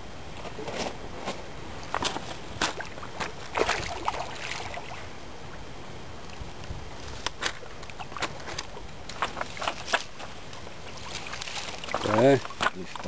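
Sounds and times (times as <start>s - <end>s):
fish splashing in water: 2.6s - 5.1s, 7.4s - 13.0s.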